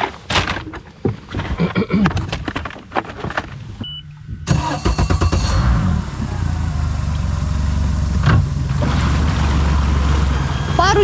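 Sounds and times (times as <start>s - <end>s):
engine cranking and running: 4.4s - 11.0s.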